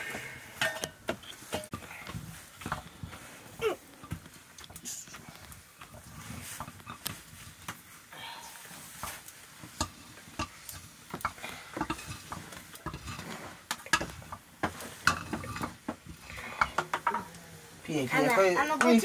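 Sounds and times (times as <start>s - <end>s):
cookware knocking and clinking: 0.6s - 1.8s, 13.8s - 17.4s, 18.7s - 19.0s.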